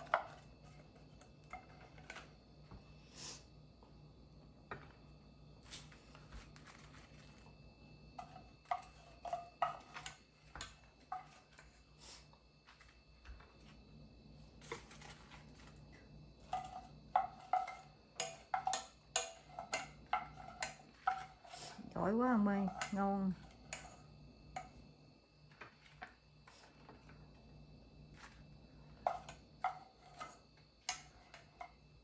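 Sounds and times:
utensils clinking on metal saucepan: 16.4 - 21.5.

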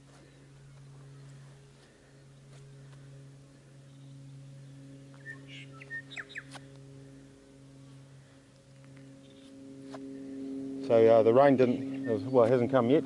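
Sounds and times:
steady low hum: 0.0 - 13.0
bird chirps and whistles: 5.2 - 6.6.

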